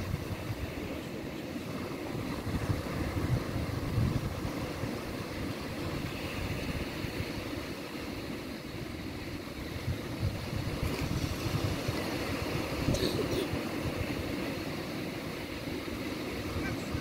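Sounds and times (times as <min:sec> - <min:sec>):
wind buffeting microphone: 0:00.0 - 0:01.0, 0:01.7 - 0:07.8, 0:09.5 - 0:15.2
small waves breaking on sand: 0:00.0 - 0:17.0.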